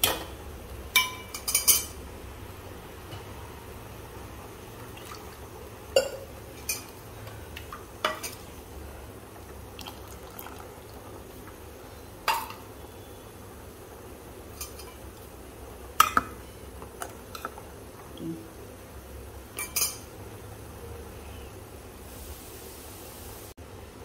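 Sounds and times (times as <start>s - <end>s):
steel utensils clinking on pot: 0.9s - 2.0s, 6.0s - 7.0s, 14.5s - 15.0s, 19.6s - 20.1s
liquid pouring into a pot: 4.8s - 6.8s, 9.4s - 11.5s.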